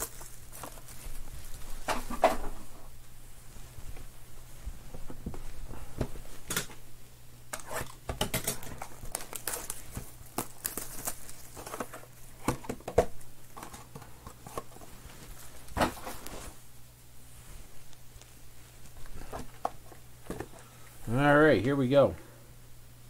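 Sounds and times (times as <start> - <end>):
plastic shrink wrap crinkling: 0.0 - 2.3, 7.6 - 12.5.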